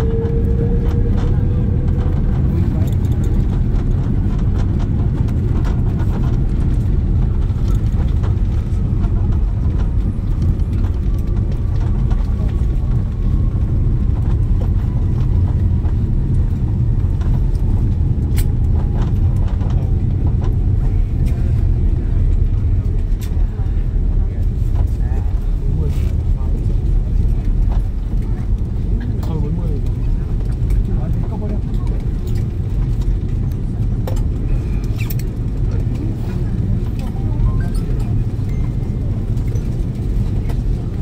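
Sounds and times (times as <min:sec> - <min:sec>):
faint falling whine: 0:00.0 - 0:03.7
engine and wheel rumble: 0:00.0 - 0:41.0.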